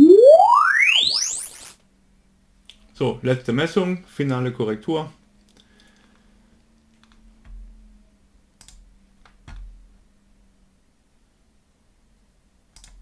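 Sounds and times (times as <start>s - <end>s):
computer mouse clicks: 8.6s - 8.8s, 12.8s - 13.0s.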